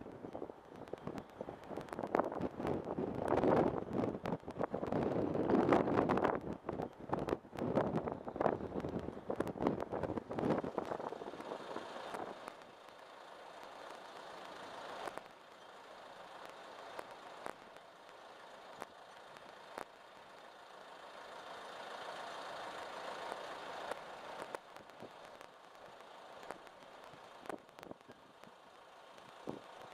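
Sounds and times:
wind buffeting microphone: 0:00.0 - 0:12.5
faint clicks: 0:00.0 - 0:29.9.

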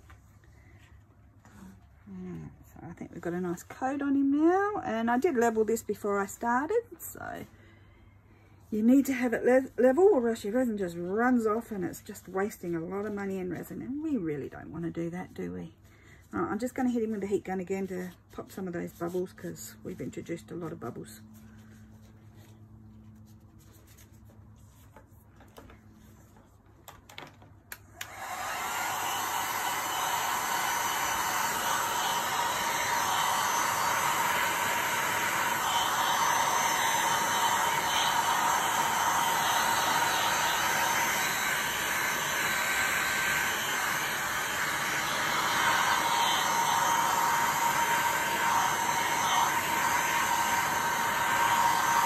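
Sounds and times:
heat gun blowing whir: 0:28.0 - 0:52.0.

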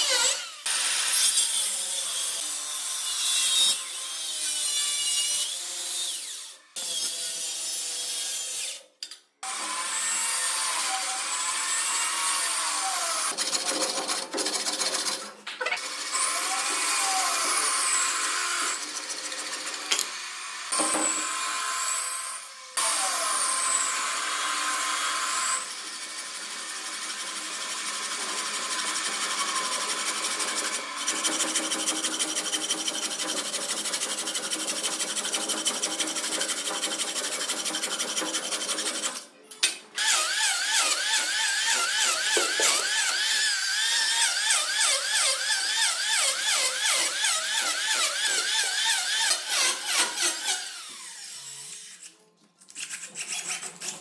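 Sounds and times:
hand saw cutting wood: 0:12.8 - 0:20.2, 0:28.6 - 0:39.2, 0:40.0 - 0:43.5, 0:44.1 - 0:51.2, 0:51.9 - 0:54.0.

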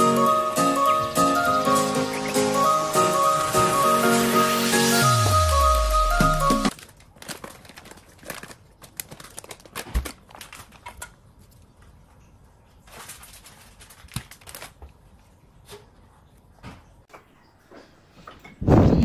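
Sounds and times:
plastic packets crinkling: 0:06.7 - 0:11.6, 0:12.8 - 0:15.2.

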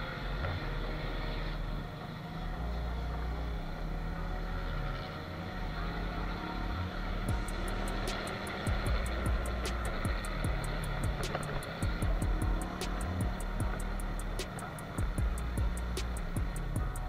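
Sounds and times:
motorcycle engine rumbling: 0:06.9 - 0:17.0.

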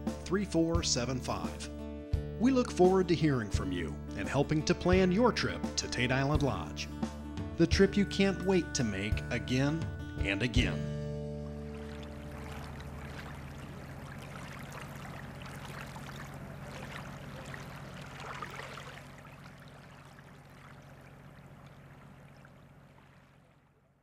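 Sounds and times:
steady low hum: 0:10.0 - 0:24.0
water lapping and trickling: 0:11.2 - 0:24.0.

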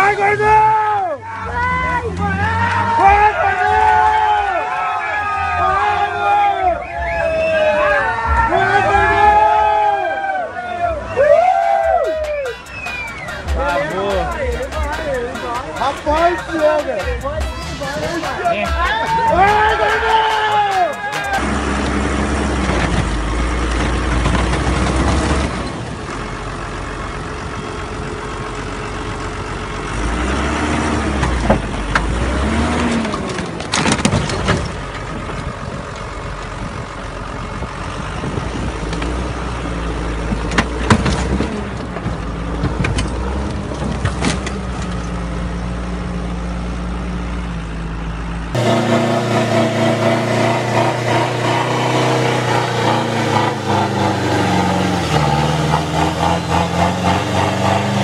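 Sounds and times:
pickup engine running: 0:00.0 - 0:58.0
tractor diesel engine under load: 0:00.0 - 0:58.0
car body crushing cracks: 0:33.0 - 0:34.8.

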